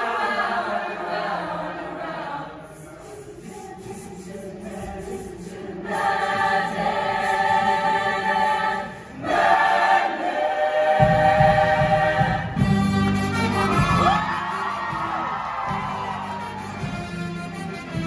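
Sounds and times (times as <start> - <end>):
choir singing sustained chords: 0.0 - 12.8.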